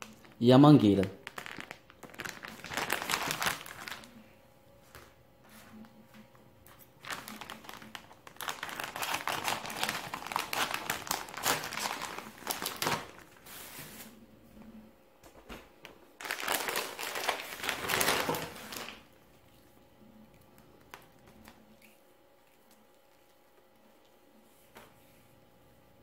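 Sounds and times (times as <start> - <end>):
plastic packaging crinkling: 0.0 - 4.2, 6.8 - 14.1, 16.2 - 19.2.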